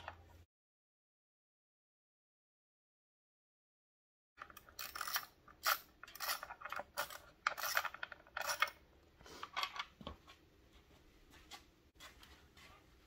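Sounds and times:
small metal parts clinking: 4.4 - 8.8.

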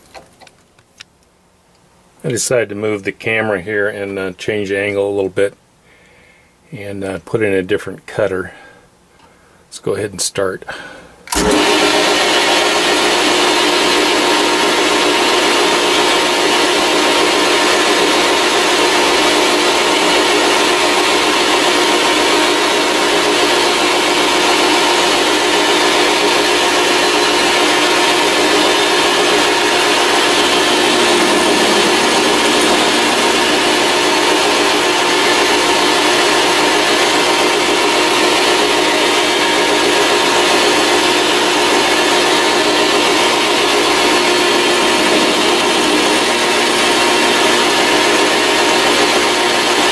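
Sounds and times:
metal lathe running: 11.3 - 49.9.

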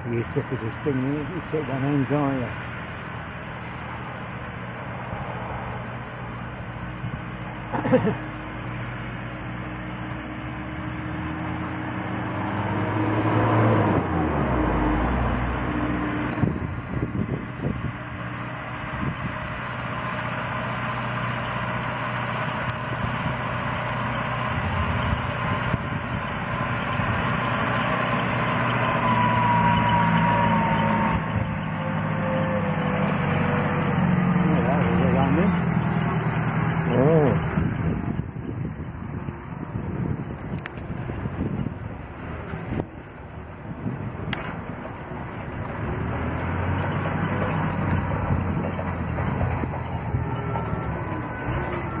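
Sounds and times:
engine running: 0.0 - 52.0
thin whining tone: 22.4 - 40.8, 49.8 - 52.0.

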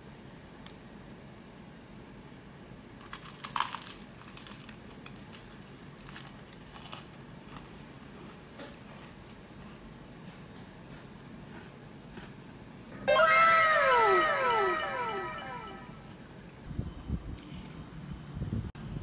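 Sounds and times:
pastry crackling being torn: 3.0 - 7.7.

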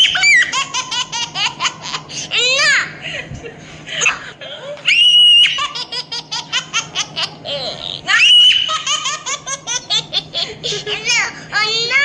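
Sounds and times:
high-pitched laughter: 0.0 - 2.9, 4.0 - 11.3
shrill squeals: 4.8 - 5.7, 8.1 - 8.9.

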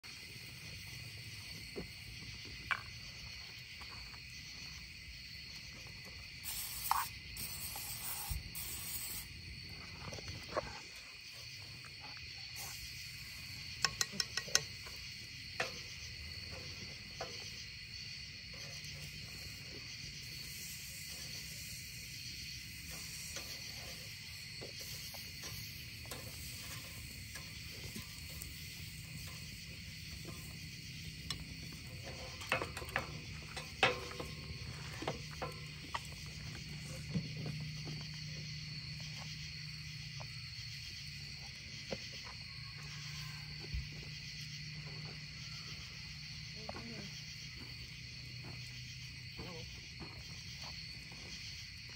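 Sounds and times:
crickets chirring: 0.0 - 51.9
meat sizzling over coals: 6.3 - 10.3, 11.9 - 38.4
fire crackling and popping: 19.1 - 36.8.

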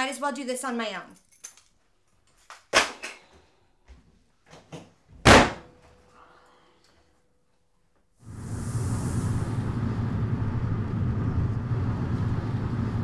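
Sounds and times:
door slamming: 5.2 - 5.7.

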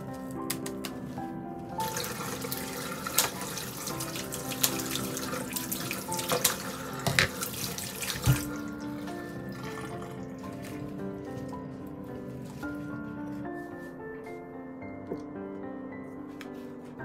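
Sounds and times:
tap running into sink: 1.8 - 10.8.

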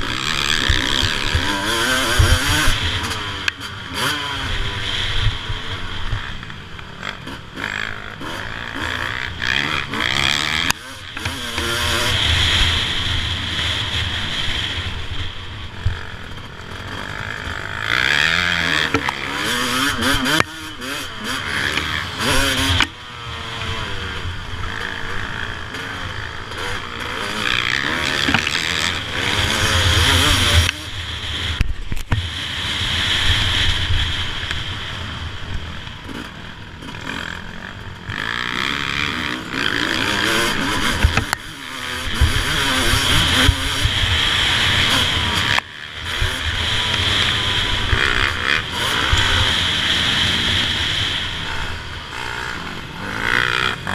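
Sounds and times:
motocross engine revving: 0.0 - 53.9.

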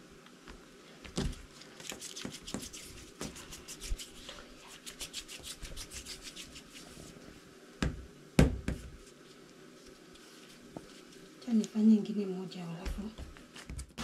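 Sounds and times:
hands rubbing dough: 1.2 - 7.4
dough thumps: 7.8 - 9.0.

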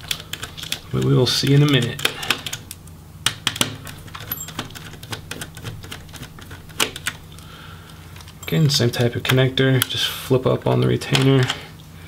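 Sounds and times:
screwdriver clicking on laptop parts: 0.0 - 1.0.

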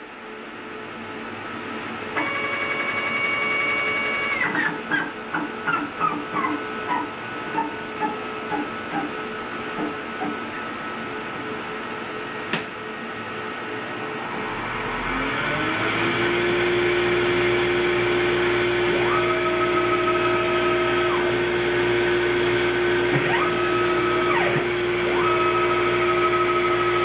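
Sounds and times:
dust extraction motor hum: 0.0 - 27.0
stepper motors whining: 14.1 - 27.0.

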